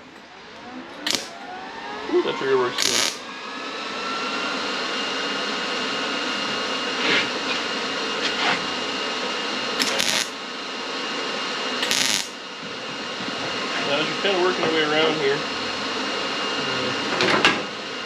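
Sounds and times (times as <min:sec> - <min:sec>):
welding machine whine: 0:00.0 - 0:18.0
welder crackling hiss: 0:01.1 - 0:01.4, 0:02.8 - 0:03.2, 0:09.8 - 0:10.4, 0:11.8 - 0:12.4.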